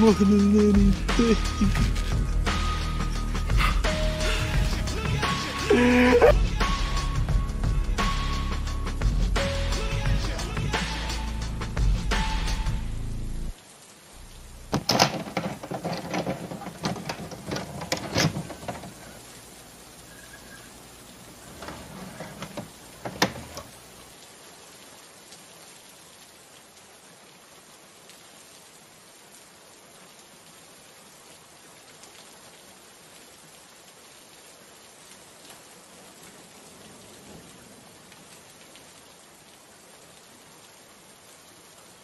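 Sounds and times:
steady rain: 0:00.0 - 0:42.0
sharp knocks: 0:14.7 - 0:19.0.

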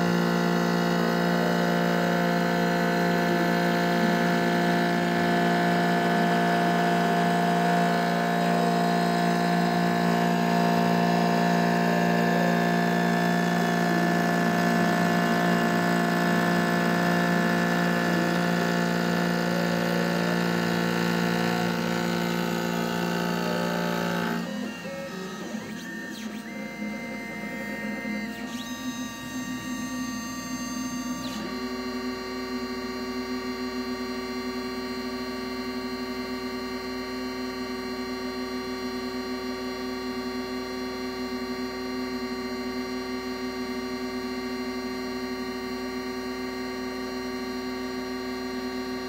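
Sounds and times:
axis motors sweeping in pitch: 0:00.0 - 0:32.9
spindle whine: 0:00.0 - 0:36.7.

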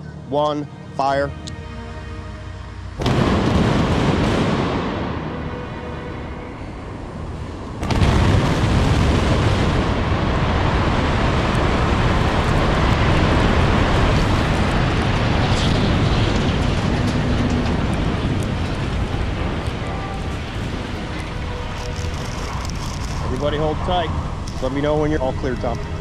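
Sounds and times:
heavy rumble of falling debris: 0:03.0 - 0:05.3, 0:07.7 - 0:26.0
demolition explosion: 0:03.0 - 0:26.0.

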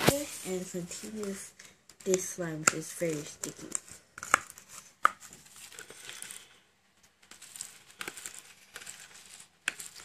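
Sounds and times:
slime crackling and squelching: 0:07.3 - 0:10.0.

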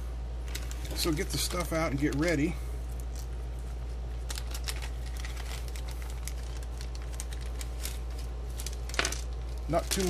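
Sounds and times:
steady low hum: 0:00.0 - 0:10.0
small clicks and rustling: 0:04.2 - 0:10.0.

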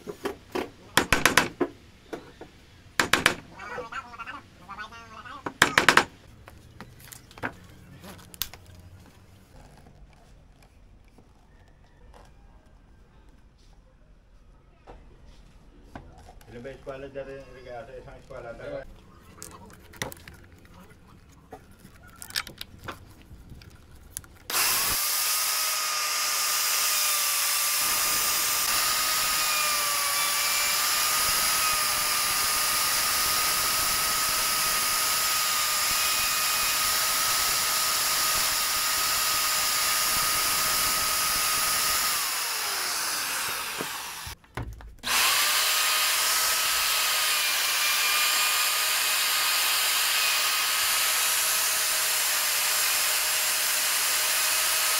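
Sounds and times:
router whining: 0:24.4 - 0:44.4, 0:45.0 - 0:54.9
router winding down: 0:24.5 - 0:44.4, 0:45.0 - 0:54.9.

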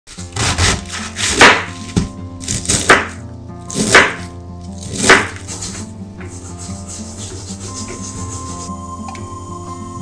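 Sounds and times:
background music: 0:00.1 - 0:10.0
knife chopping on wooden board: 0:00.4 - 0:06.4.

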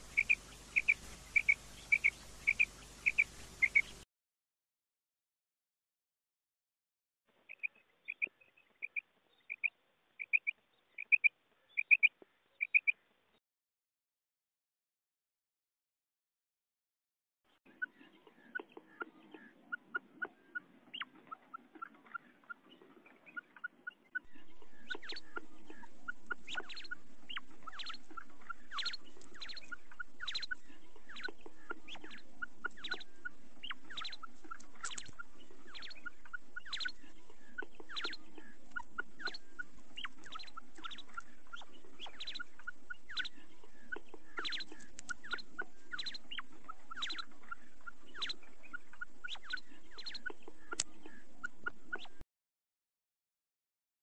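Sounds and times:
low background noise: 0:00.0 - 0:04.0, 0:17.7 - 0:52.2
quail calling: 0:00.0 - 0:04.0, 0:17.8 - 0:52.2.

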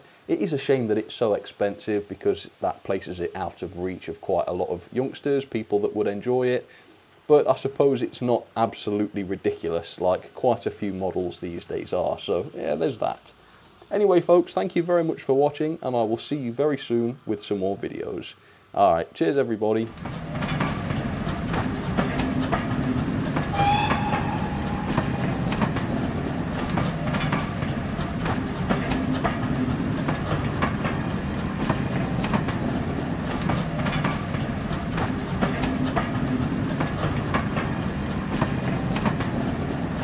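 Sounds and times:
wheels clicking: 0:19.9 - 0:39.9
train rumbling on track: 0:19.9 - 0:40.0
train whistle: 0:23.5 - 0:26.1.

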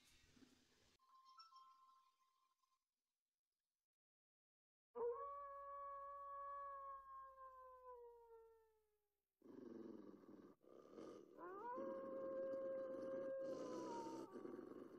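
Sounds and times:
long howl: 0:05.0 - 0:08.7, 0:11.3 - 0:14.9.

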